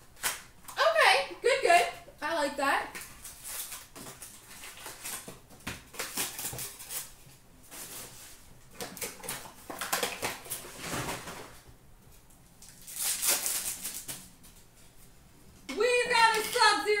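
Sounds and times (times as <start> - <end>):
card pack wrappers crinkling: 12.6 - 14.3.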